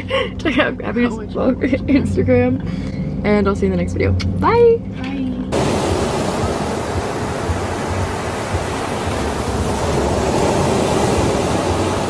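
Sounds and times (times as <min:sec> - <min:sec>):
ocean surf rushing: 0:05.5 - 0:12.0.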